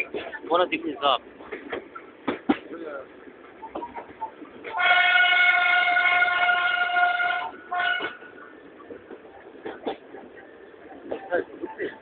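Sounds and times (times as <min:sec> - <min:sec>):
train horn blasts: 0:04.7 - 0:08.3.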